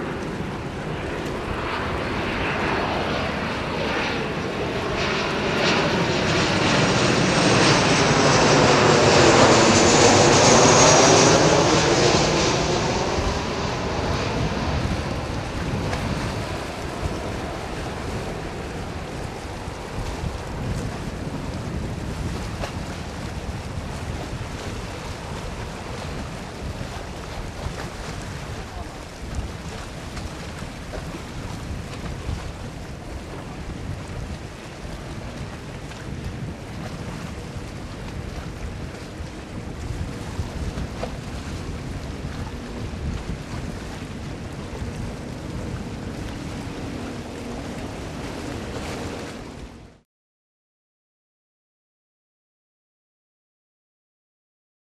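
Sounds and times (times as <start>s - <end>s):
jet engines rumbling: 0.0s - 30.1s, 43.8s - 50.0s
wind buffeting microphone: 0.0s - 50.0s.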